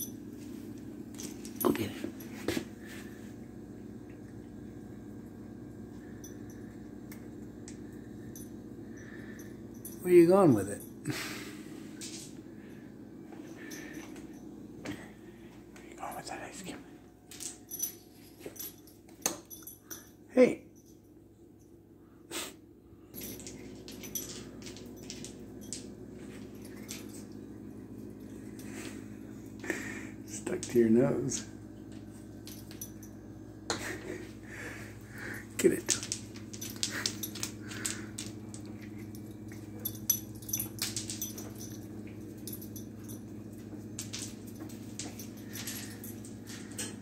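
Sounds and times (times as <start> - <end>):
steady low hum: 0.0 - 47.0
dog claws clicking on tiles: 35.6 - 47.0
ice and claws tapping on tile: 35.8 - 38.9.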